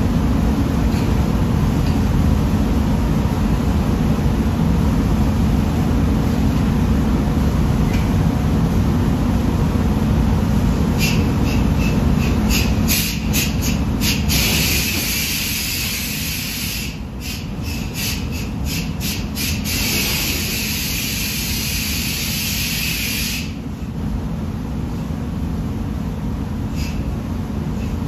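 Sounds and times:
ventilation rumble: 0:00.0 - 0:28.0
spray gun hissing: 0:12.5 - 0:23.6.

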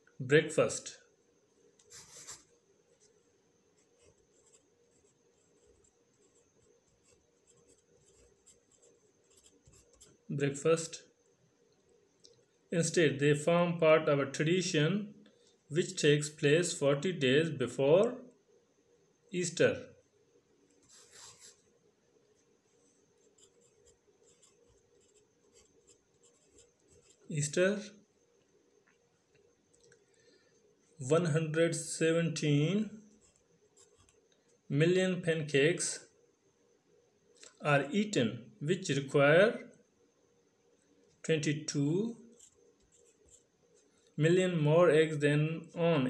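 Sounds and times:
pencil scratching on paper: 0:01.8 - 0:03.2, 0:03.8 - 0:10.2, 0:20.8 - 0:21.6, 0:23.2 - 0:27.3, 0:33.1 - 0:34.2, 0:42.3 - 0:43.9.

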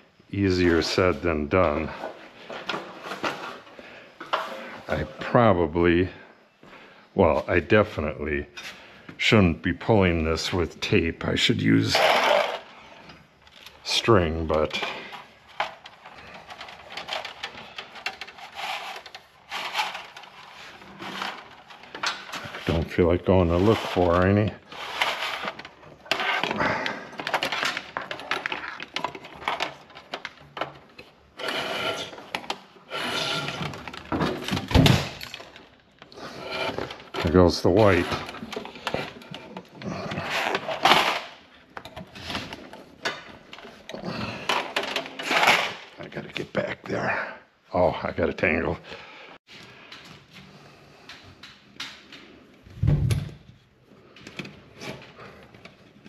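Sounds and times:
wires scraping through metal box: 0:11.8 - 0:12.7, 0:16.0 - 0:28.8, 0:31.4 - 0:34.0.

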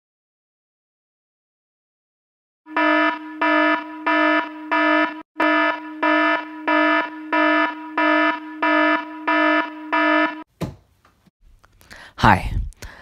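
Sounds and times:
alarm buzzy beeps: 0:02.7 - 0:10.5.

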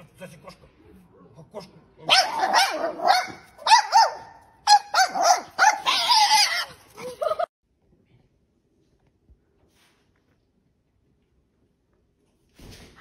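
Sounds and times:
small dog barking: 0:02.1 - 0:07.5.

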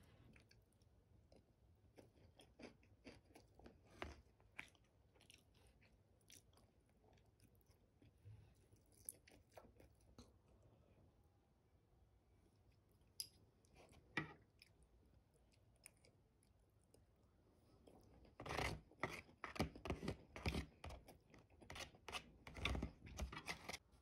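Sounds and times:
spoon scraping plastic tray: 0:18.3 - 0:21.0, 0:21.6 - 0:23.8.

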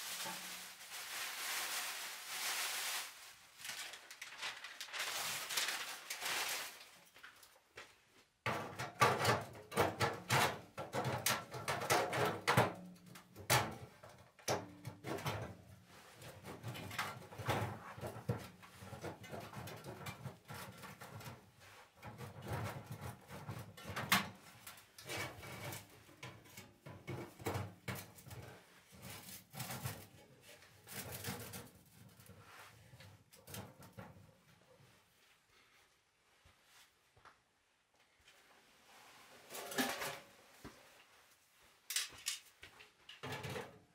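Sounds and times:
plastic wrapping crinkling: 0:00.0 - 0:07.6
sheet-metal stove clunking and rattling: 0:08.4 - 0:15.8, 0:16.4 - 0:21.4, 0:22.0 - 0:28.5, 0:43.1 - 0:43.8.

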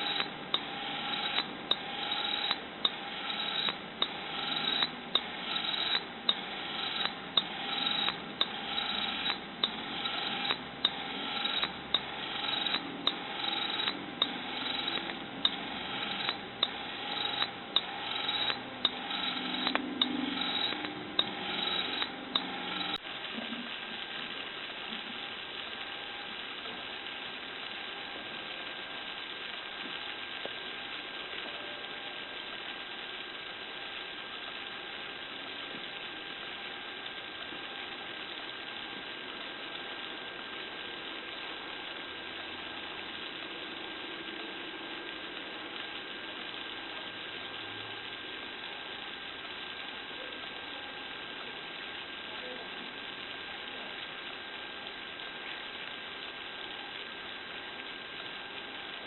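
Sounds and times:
hose reel mechanism clicking: 0:00.0 - 0:23.0
steady hiss: 0:00.0 - 0:59.0.

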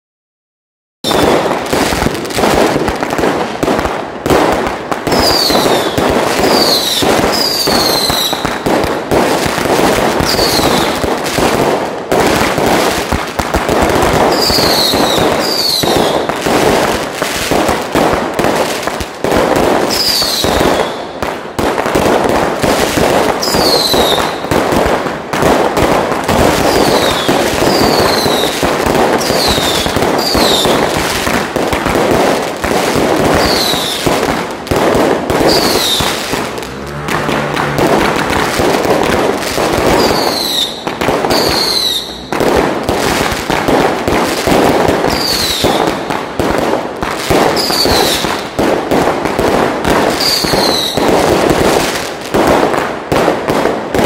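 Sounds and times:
aerial fireworks bursting: 0:01.0 - 0:54.0
firecrackers crackling: 0:01.0 - 0:54.0.

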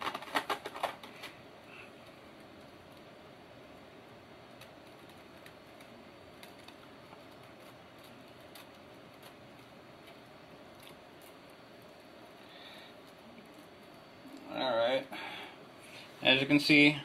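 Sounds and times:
room hiss: 0:00.0 - 0:17.0
thin steady hum: 0:00.0 - 0:17.0
wire mesh clicking and ticking: 0:04.5 - 0:12.1.

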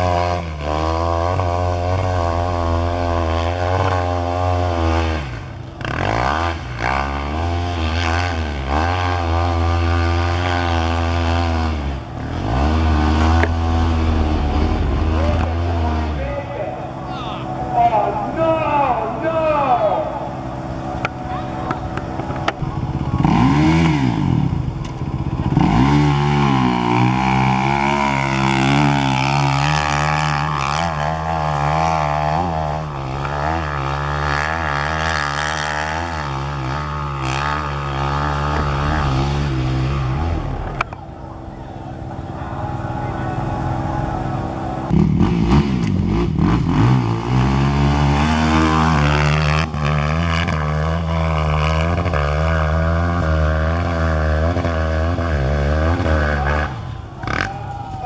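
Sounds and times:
motorcycle engine revving hard: 0:00.0 - 0:57.7.

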